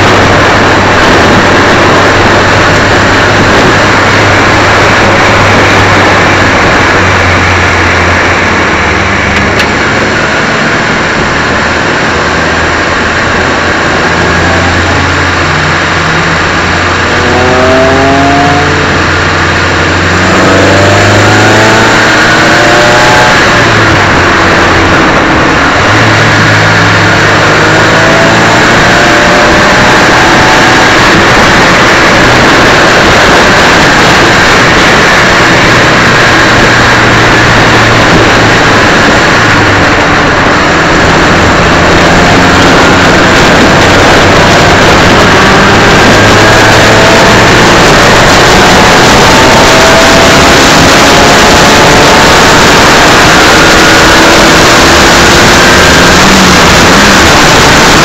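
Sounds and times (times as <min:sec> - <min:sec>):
race car engine running hard: 0:00.0 - 0:58.0
wind and road noise: 0:00.0 - 0:58.0.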